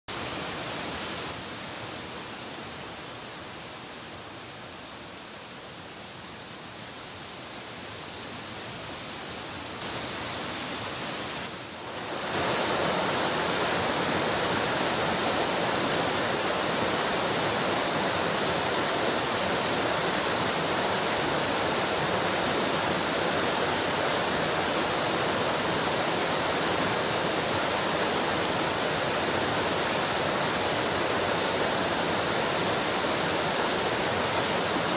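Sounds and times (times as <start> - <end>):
waterfall rushing: 0.1 - 34.9.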